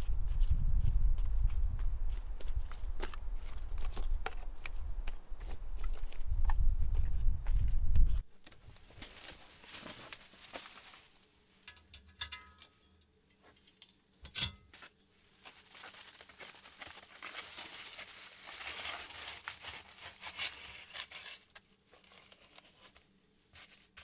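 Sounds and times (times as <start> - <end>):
aluminium foil crinkling: 8.8 - 11.8, 14.8 - 24.0.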